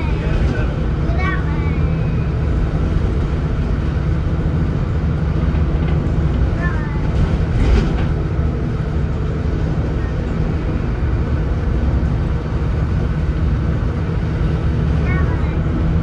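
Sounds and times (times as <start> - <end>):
diesel bus engine droning: 0.0 - 16.0.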